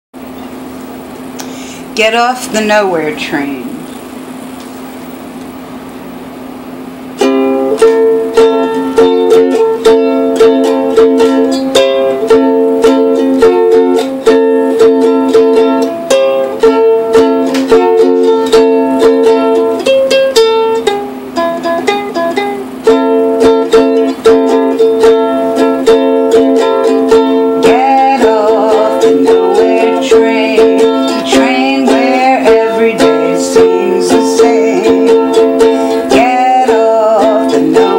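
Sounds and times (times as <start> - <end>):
low steady hum: 0.2 - 37.9
strummed ukulele chords: 6.8 - 37.9.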